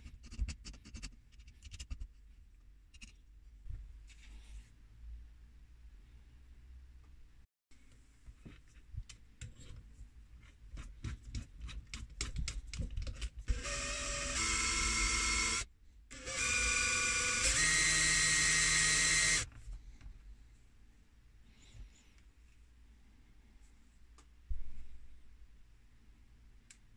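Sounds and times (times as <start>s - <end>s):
cordless drill spinning: 13.5s - 19.5s.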